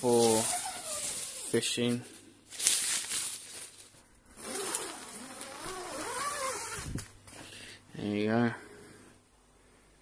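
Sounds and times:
tent fabric rustling: 0.0 - 7.0
tent zip rasping: 0.2 - 1.5, 4.4 - 7.0.

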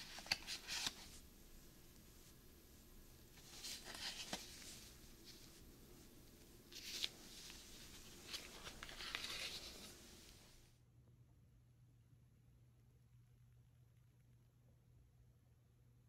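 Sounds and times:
cards swishing: 0.0 - 1.2, 3.3 - 5.6, 6.7 - 10.4.

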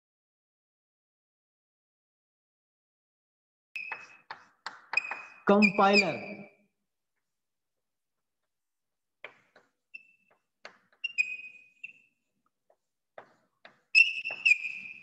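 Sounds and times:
chalk tapping and scratching: 3.8 - 5.8, 9.2 - 15.0
high-pitched chalk squeaks: 3.8 - 6.5, 9.2 - 15.0.

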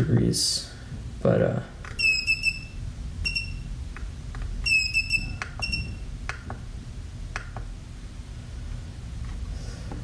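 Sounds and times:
short high beeps: 4.7 - 6.0.

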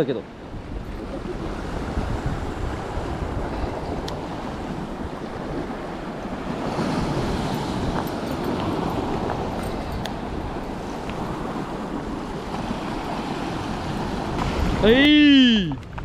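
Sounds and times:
surf washing against rocks: 0.0 - 16.0
wind buffeting microphone: 0.3 - 16.0.

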